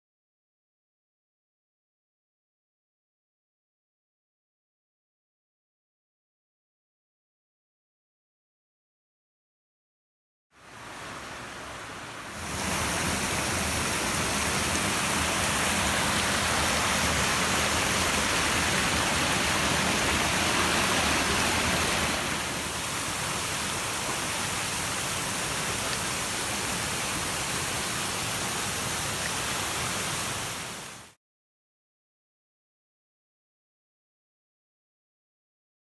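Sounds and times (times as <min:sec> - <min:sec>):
water rushing over rocks: 0:10.6 - 0:31.2.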